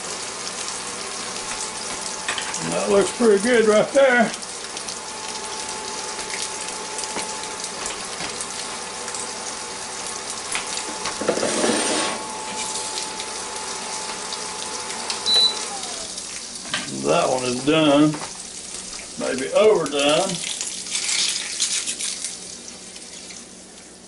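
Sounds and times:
egg frying sizzle: 0:00.0 - 0:24.0
cooktop high beep: 0:15.2 - 0:16.0.

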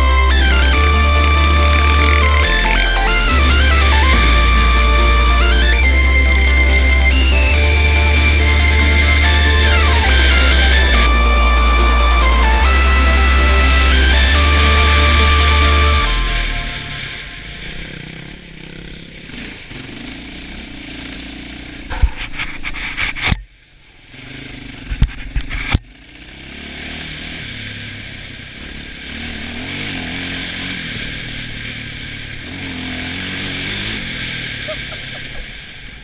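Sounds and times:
quad bike engine running: 0:00.0 - 0:36.0
knocks and scrapes on helmet camera: 0:21.9 - 0:23.5, 0:24.9 - 0:25.8.

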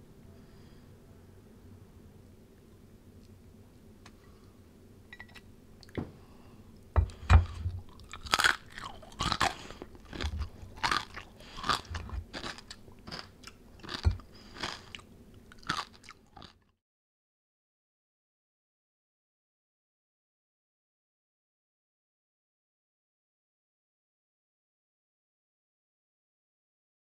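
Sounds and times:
crispy pork skin crunching: 0:07.5 - 0:16.6.

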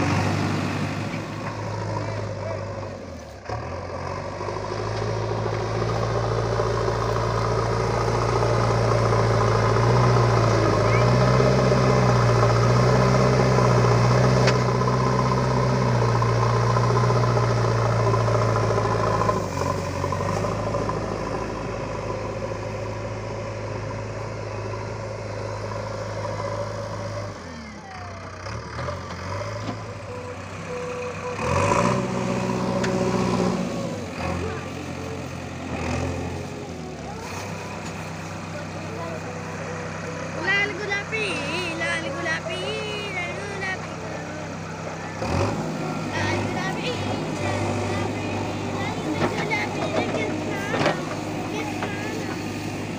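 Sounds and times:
diesel engine running under load: 0:00.0 - 0:52.9.

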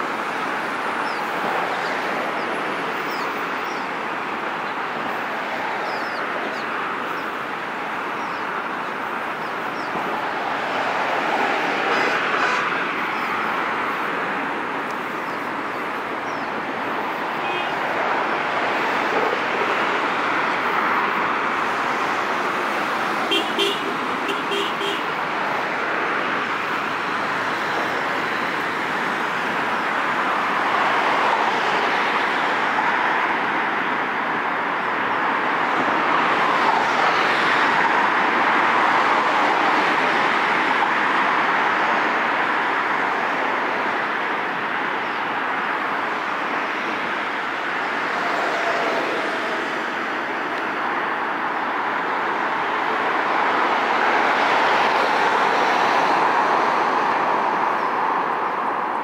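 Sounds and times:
road traffic noise: 0:00.0 - 0:59.0
car horn toots: 0:23.3 - 0:25.1.

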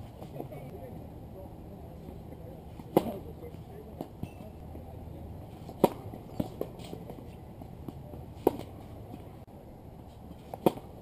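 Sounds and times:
racket hitting tennis ball: 0:02.7 - 0:03.3, 0:05.5 - 0:09.4, 0:10.3 - 0:11.0
tennis ball knocks: 0:05.6 - 0:07.2, 0:07.8 - 0:08.8.

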